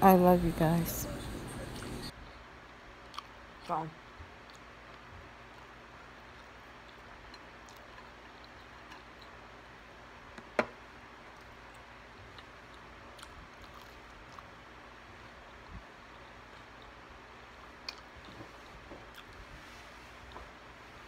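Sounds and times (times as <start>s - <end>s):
soft chewing: 1.1s - 3.5s, 4.1s - 10.4s, 11.0s - 21.0s.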